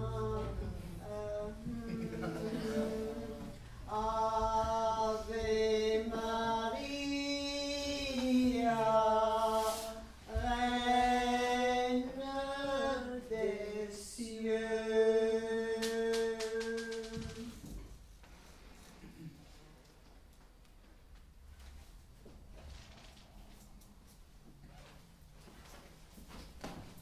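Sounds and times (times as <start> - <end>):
woman singing unaccompanied: 0.0 - 17.6.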